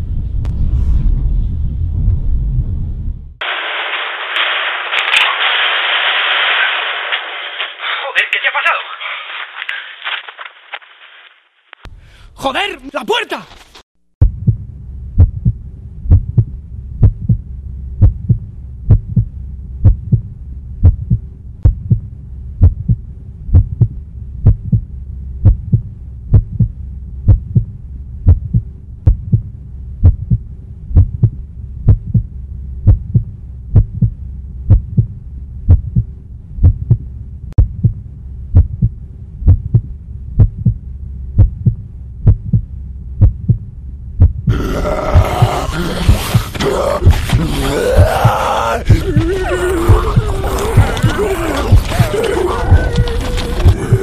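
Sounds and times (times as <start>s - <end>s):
low droning hum: 0.0s - 3.4s, 14.2s - 54.0s
heartbeat thudding: 14.2s - 54.0s.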